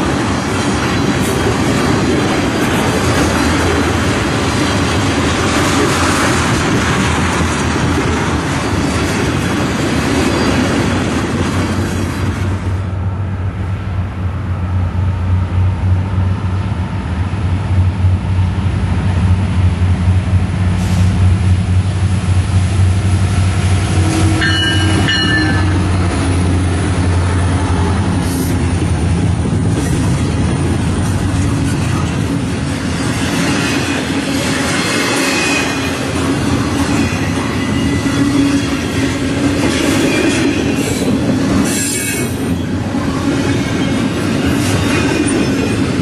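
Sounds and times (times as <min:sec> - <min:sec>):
freight cars rumbling past: 0:00.0 - 0:41.7
diesel locomotive engine drone: 0:00.0 - 0:46.0
high ringing tone: 0:24.4 - 0:25.9.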